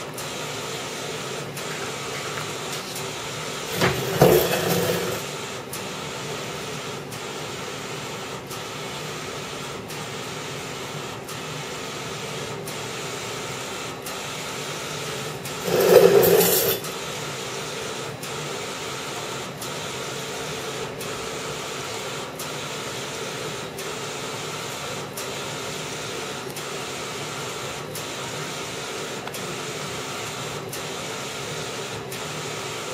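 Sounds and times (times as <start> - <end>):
printer carriage running: 0.0 - 5.8, 15.0 - 17.4.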